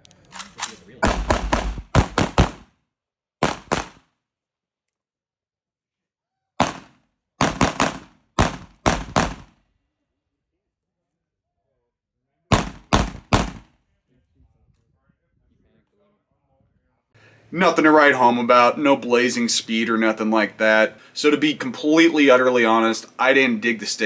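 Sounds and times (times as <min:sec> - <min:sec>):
semi-automatic rifle shots: 0:00.3 - 0:02.7, 0:03.4 - 0:04.1, 0:06.6 - 0:09.6, 0:12.5 - 0:13.8.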